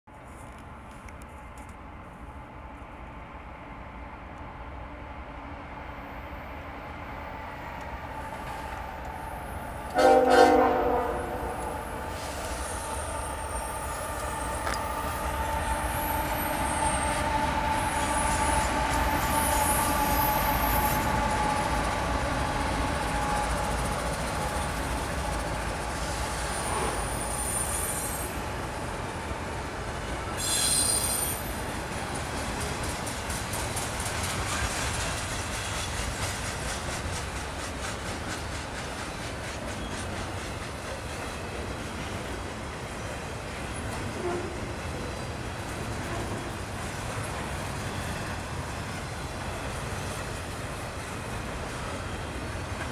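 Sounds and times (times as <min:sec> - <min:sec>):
locomotive horn blast: 0:09.9 - 0:11.9
wheel squeal: 0:26.5 - 0:28.4, 0:30.4 - 0:31.6.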